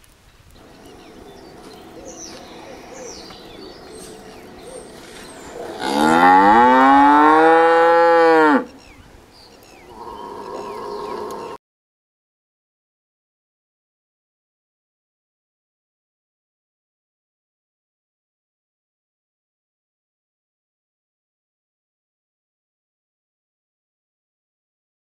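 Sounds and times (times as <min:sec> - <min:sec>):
small birds chirping faintly: 0:00.0 - 0:11.6
cow mooing: 0:01.1 - 0:08.8, 0:09.9 - 0:11.6.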